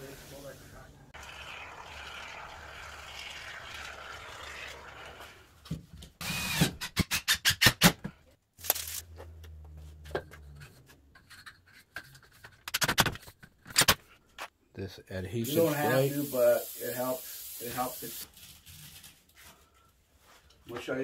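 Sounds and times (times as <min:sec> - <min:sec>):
aerosol foam can hissing: 0:15.5 - 0:18.2.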